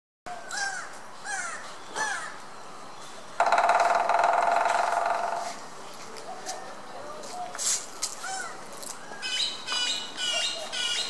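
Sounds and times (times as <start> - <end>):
woodpecker drumming on wood: 3.4 - 5.6.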